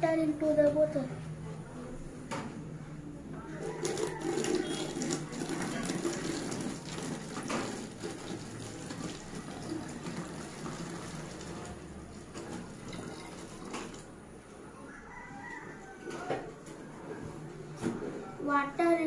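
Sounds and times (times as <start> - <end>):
water pouring into plastic bottle: 3.6 - 14.1.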